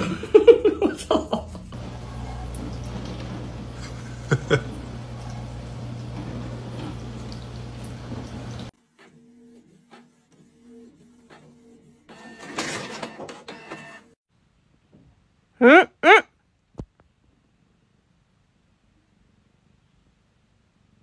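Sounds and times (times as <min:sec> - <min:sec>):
kitchen tap running: 0:01.7 - 0:08.7
printer whirring and clicking: 0:08.9 - 0:14.2.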